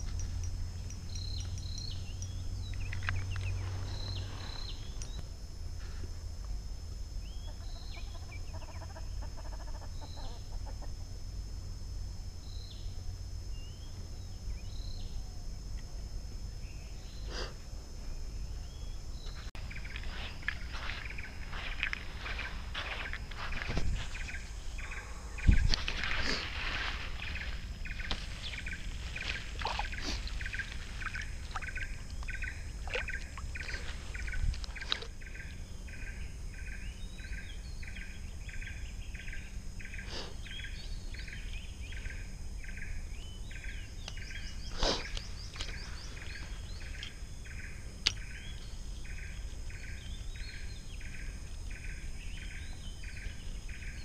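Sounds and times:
pulsing animal call: 7.3 - 11.2.

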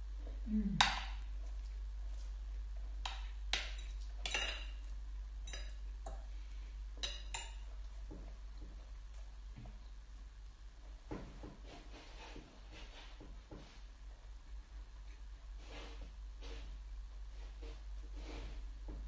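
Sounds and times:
cutlery clinking on glass bowl: 3.0 - 4.8, 5.4 - 6.2, 7.0 - 7.6.

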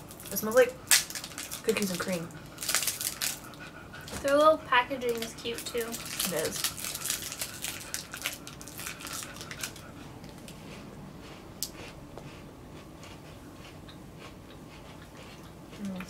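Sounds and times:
wrappers crinkling and tearing: 0.0 - 3.5, 5.1 - 9.8.

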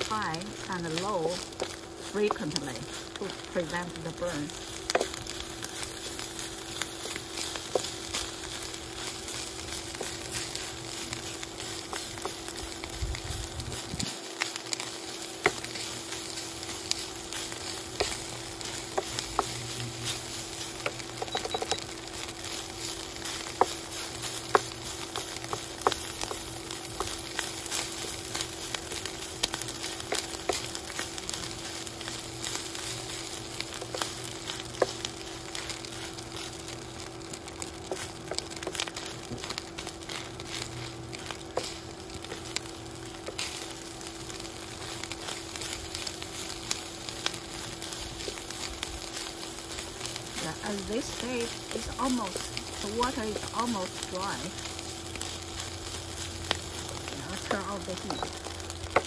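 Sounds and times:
meat sizzling in a frying pan: 0.0 - 59.0
steady hum: 0.0 - 59.0.

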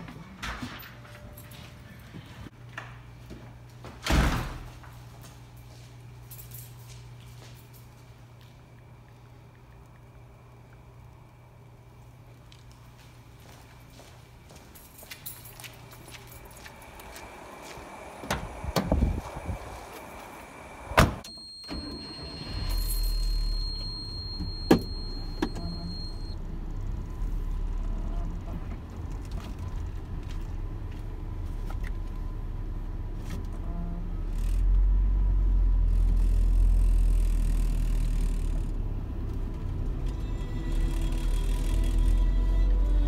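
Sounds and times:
keys jangling: 14.7 - 16.6
high steady tone: 16.7 - 26.4
car door slamming: 20.9 - 21.3.

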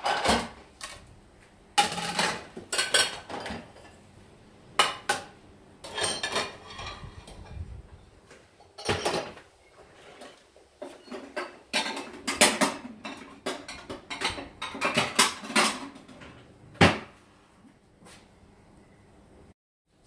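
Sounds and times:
dishes and utensils clinking: 1.8 - 4.0, 4.8 - 7.6, 8.6 - 9.4, 10.0 - 16.3.

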